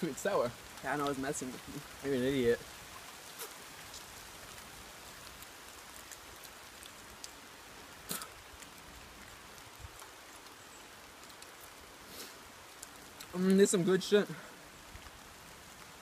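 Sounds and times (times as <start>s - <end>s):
rain hiss: 0.0s - 16.0s
faint ticks: 12.7s - 13.6s.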